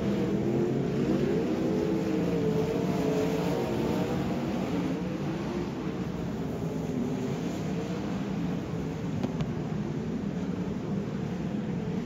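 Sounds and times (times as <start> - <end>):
race car engines revving: 0.0 - 9.1.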